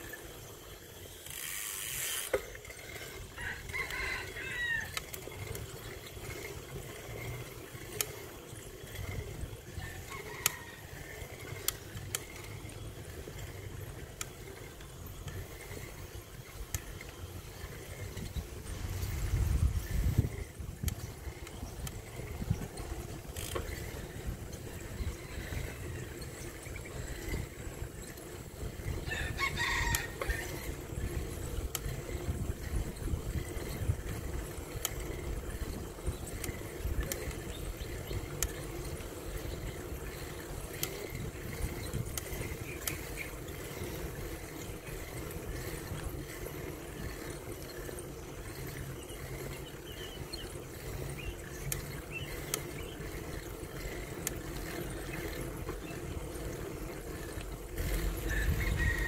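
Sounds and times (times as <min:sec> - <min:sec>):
bicycle clicks and rattles: 0:00.0 - 0:59.0
wind and tyres rumbling: 0:00.0 - 0:59.0
rooster crowing: 0:03.3 - 0:05.2, 0:29.0 - 0:30.8, 0:58.2 - 0:59.0.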